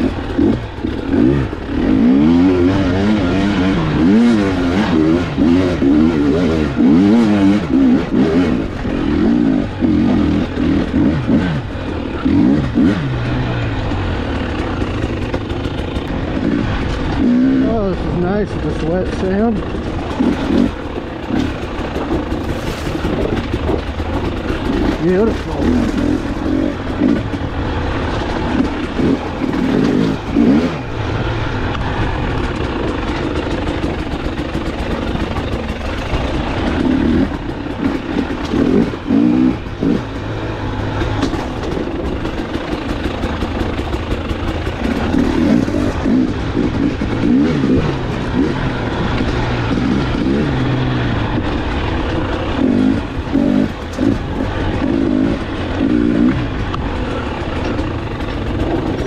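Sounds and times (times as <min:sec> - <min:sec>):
dirt bike engine revving: 0:00.0 - 0:59.0
steady rushing noise: 0:00.0 - 0:59.0.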